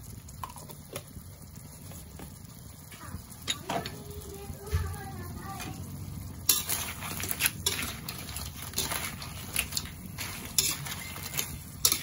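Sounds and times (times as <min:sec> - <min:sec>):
spatula scraping metal wok: 0:05.6 - 0:12.0
crab shells clattering: 0:06.5 - 0:12.0.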